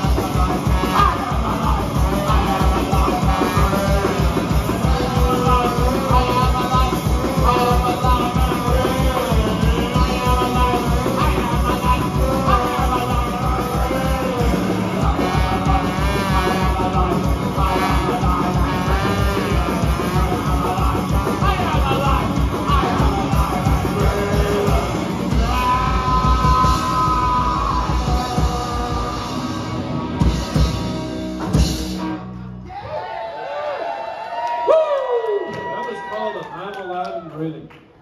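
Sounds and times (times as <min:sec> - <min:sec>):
trombone: 0:00.0 - 0:07.9, 0:14.1 - 0:21.7
punk rock band playing: 0:00.0 - 0:32.8.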